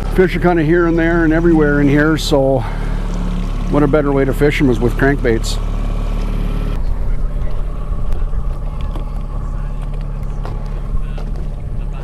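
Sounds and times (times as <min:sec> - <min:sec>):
boat motor humming: 0:00.0 - 0:12.0.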